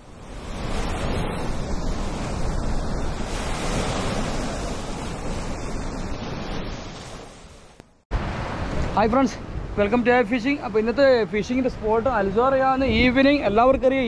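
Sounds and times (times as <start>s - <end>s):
waves breaking: 0.0s - 14.0s.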